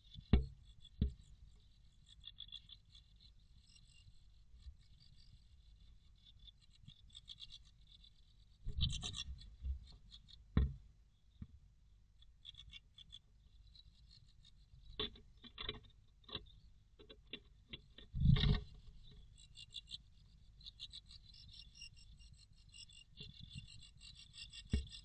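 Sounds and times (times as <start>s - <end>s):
thump: 10.6s - 10.8s
sharp taps and scrapes: 14.8s - 18.9s, 24.4s - 25.0s.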